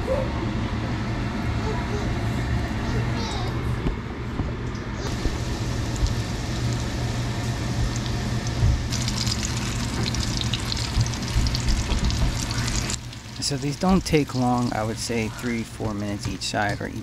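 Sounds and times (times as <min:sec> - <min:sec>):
steady low hum: 0:00.0 - 0:17.0
fish sizzling in hot oil: 0:05.1 - 0:15.4.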